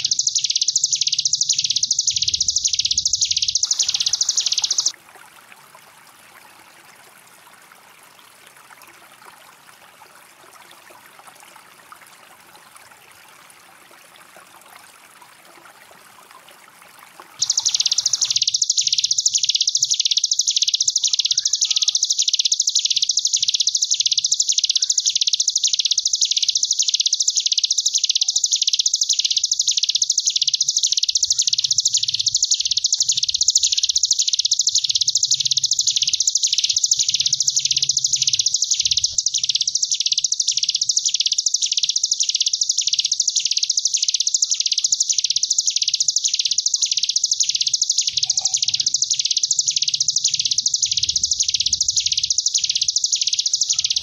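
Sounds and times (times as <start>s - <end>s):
bird singing buzzing trill: 0.0s - 4.9s, 17.4s - 54.0s.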